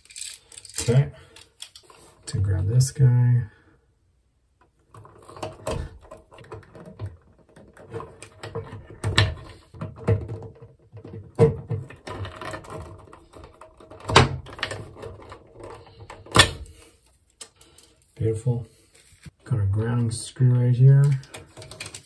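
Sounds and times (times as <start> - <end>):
wire rustling and scraping: 11.8 - 20.0.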